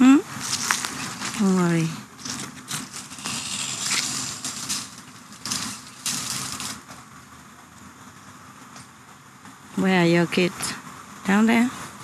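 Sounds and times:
rustling and crunching: 0.3s - 7.0s.

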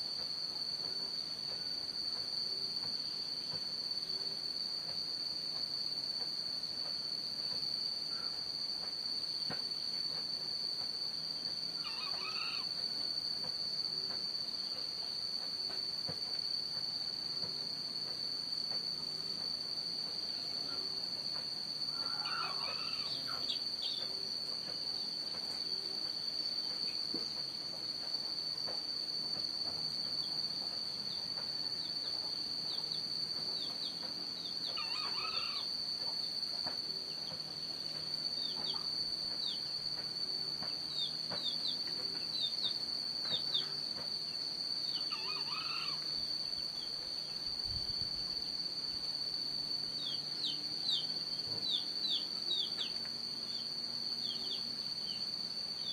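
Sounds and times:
insects droning: 0.0s - 55.9s
faint bird calls: 11.8s - 12.7s, 21.9s - 24.2s, 34.7s - 35.7s, 44.9s - 46.0s.

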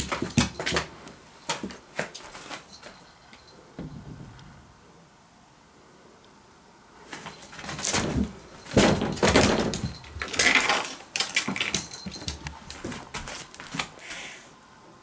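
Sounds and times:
scuffling and knocks on wooden floor: 0.0s - 3.0s, 7.2s - 13.9s.

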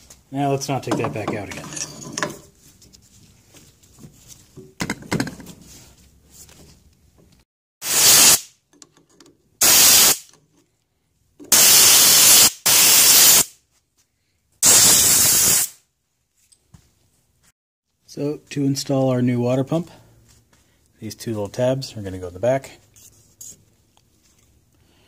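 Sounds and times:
hissing pressurised spray bursts: 7.8s - 8.5s, 9.6s - 10.3s, 11.5s - 13.5s, 14.6s - 15.8s.

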